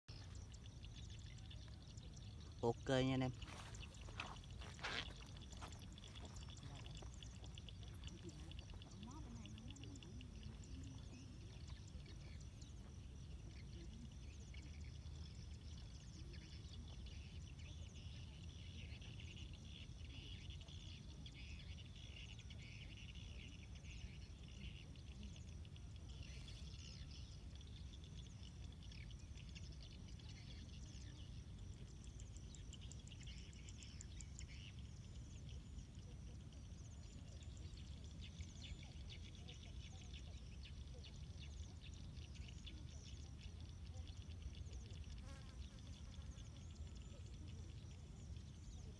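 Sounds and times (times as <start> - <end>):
faint high animal chirping: 32.5 - 48.9.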